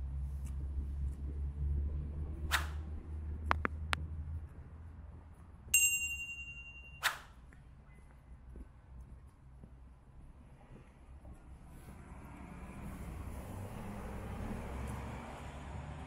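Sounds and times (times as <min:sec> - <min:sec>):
city traffic rumble: 0:00.0 - 0:16.0
whoosh: 0:02.4 - 0:02.9
bell ding: 0:05.8 - 0:07.1.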